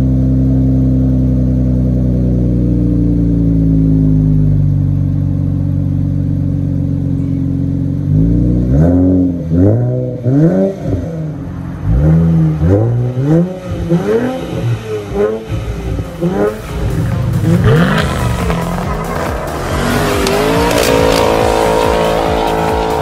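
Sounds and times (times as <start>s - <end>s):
car exhaust idling: 0.0s - 23.0s
engine revving: 8.0s - 23.0s.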